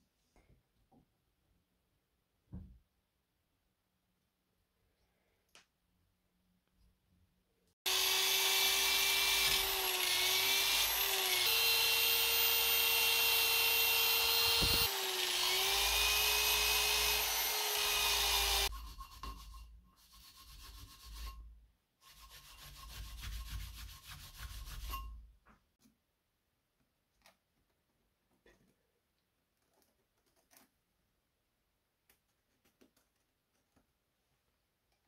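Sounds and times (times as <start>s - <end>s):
electric drill wire brush scrubbing: 7.9s - 18.7s.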